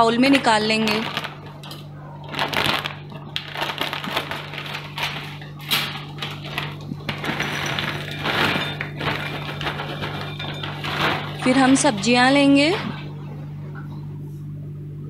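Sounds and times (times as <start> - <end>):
low hum: 0.0 - 15.0
snack packet crinkling: 0.3 - 11.9.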